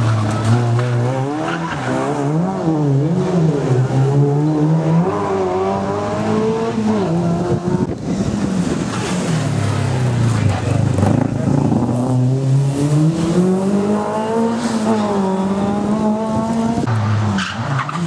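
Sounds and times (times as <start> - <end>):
rally car engine revving hard: 0.0 - 18.0.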